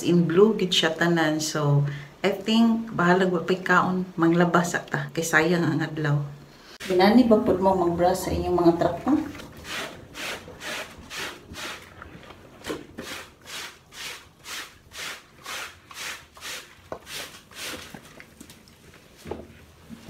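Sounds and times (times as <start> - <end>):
scrub brush scrubbing wet cloth: 9.0 - 19.2.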